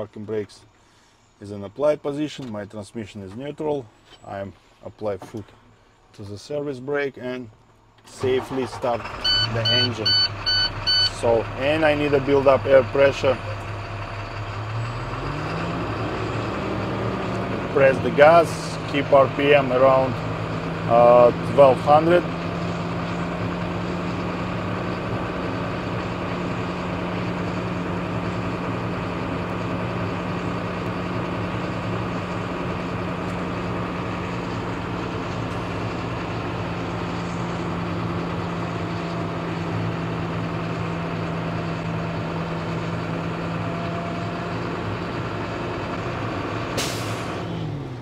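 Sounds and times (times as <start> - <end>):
diesel truck engine idling: 8.2 - 48.0.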